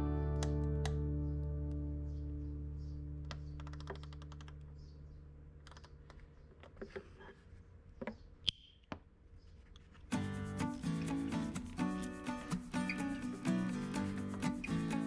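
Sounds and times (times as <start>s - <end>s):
guitar chord: 0.0s - 3.3s.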